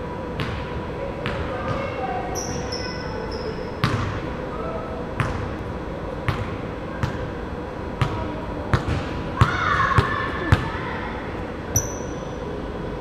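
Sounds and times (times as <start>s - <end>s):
shoe squeak: 2.3s - 3.8s, 11.8s - 12.4s
basketball bouncing on wooden floor: 3.8s - 4.2s.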